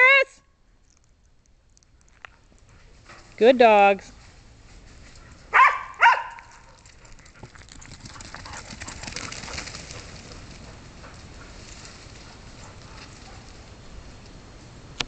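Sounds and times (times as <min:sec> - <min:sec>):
paws running on gravel: 0:04.0 - 0:13.8
dog barking: 0:05.5 - 0:06.8.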